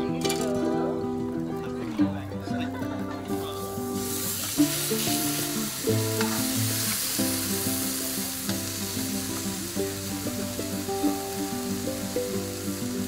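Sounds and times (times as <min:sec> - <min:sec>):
background music: 0:00.0 - 0:13.0
beef sizzling on a grill plate: 0:03.3 - 0:13.0.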